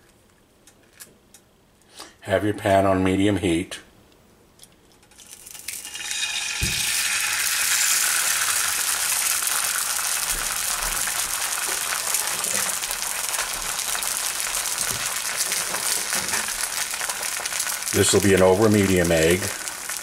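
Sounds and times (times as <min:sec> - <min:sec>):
egg sizzling in hot oil: 0:05.1 - 0:20.0.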